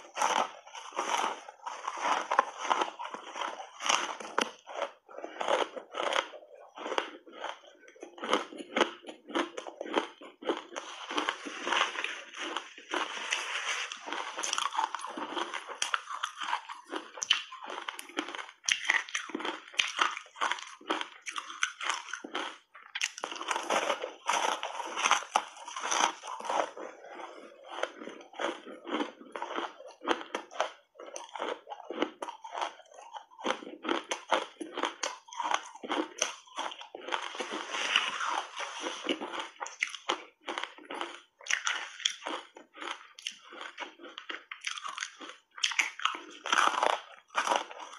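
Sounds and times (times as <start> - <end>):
ice being chewed crunching: 0.0 - 47.9.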